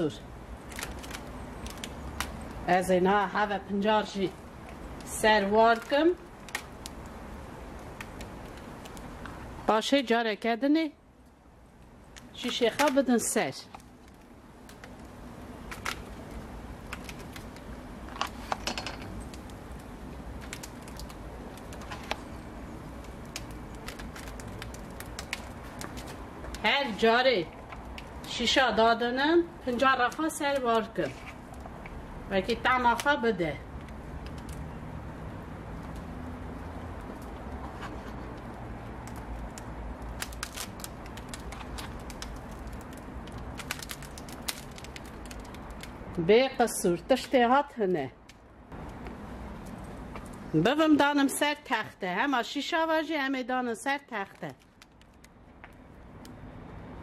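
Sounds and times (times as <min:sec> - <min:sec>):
embers crackling and popping: 0:00.0 - 0:57.0.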